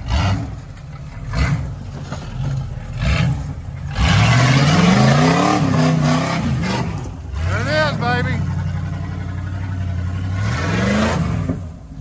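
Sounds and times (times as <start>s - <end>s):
buggy engine revving: 0.0s - 12.0s.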